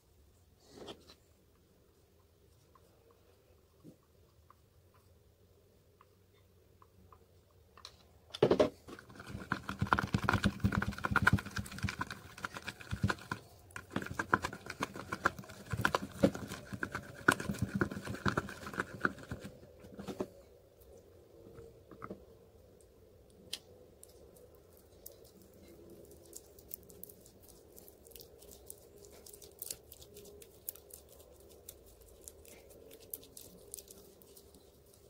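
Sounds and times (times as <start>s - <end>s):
stick stirring slime in plastic tub: 8.9s - 20.2s.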